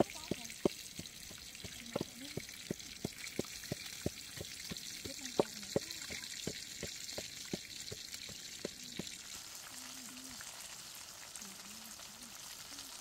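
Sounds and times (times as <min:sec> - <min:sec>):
pestle pounding in mortar: 0:00.0 - 0:09.2
rushing water: 0:00.0 - 0:10.5.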